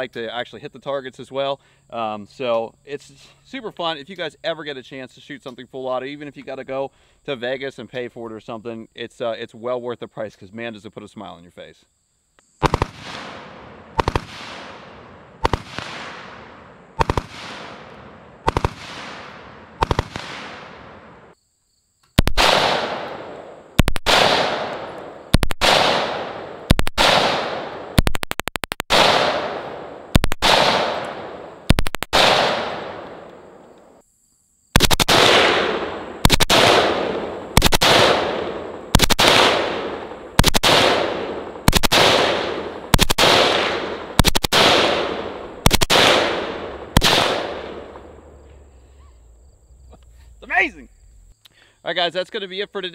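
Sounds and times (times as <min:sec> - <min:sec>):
automatic gunfire bursts: 0:12.6 - 0:13.4, 0:14.0 - 0:14.7, 0:15.4 - 0:16.2, 0:17.0 - 0:17.8, 0:18.4 - 0:19.2, 0:19.8 - 0:20.7, 0:22.2 - 0:23.1, 0:23.8 - 0:24.7, 0:25.3 - 0:31.0, 0:31.7 - 0:32.9, 0:34.8 - 0:39.8, 0:40.4 - 0:47.6
gunshot echo: 0:12.6 - 0:21.2, 0:22.2 - 0:33.3, 0:34.8 - 0:48.1.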